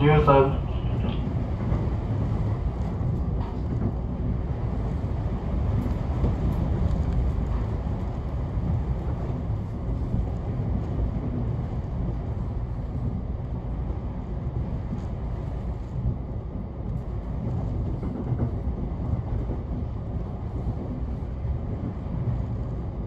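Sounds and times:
train wheels rumbling on rails: 0.0s - 23.0s.

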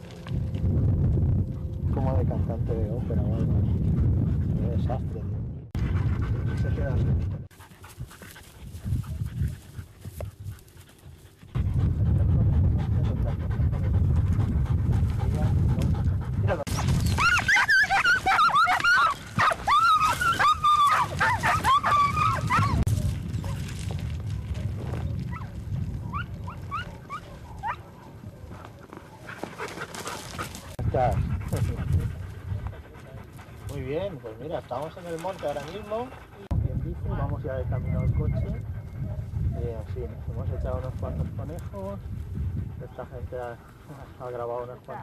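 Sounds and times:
dogs panting: 1.4s - 5.1s, 5.8s - 24.0s, 24.9s - 45.0s
rustling in dry grass: 7.5s - 11.5s
dogs yelping: 16.8s - 23.6s, 25.3s - 31.4s.

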